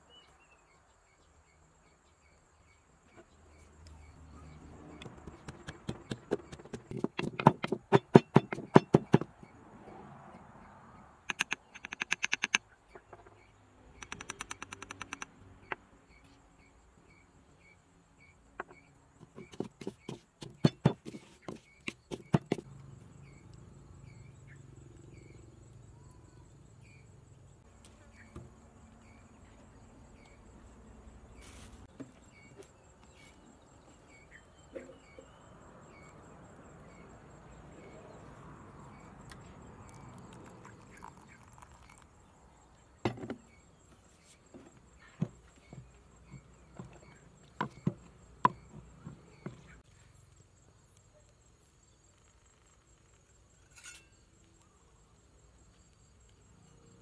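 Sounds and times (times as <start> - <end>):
insects chirping: 0.5 - 57.0
pestle pounding in wooden mortar: 5.0 - 9.4, 19.2 - 22.7.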